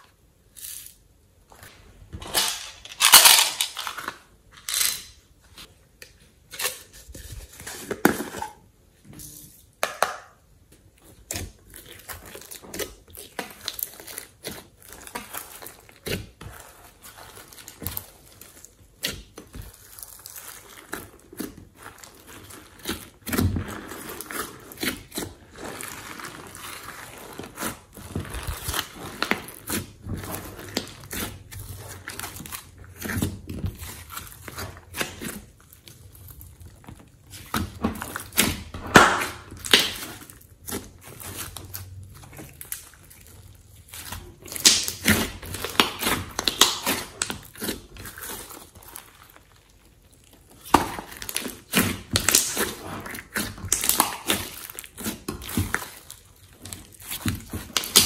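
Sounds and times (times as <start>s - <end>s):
slime clicking and popping: 44.4s - 47.7s, 50.6s - 52.8s, 53.4s - 56.1s.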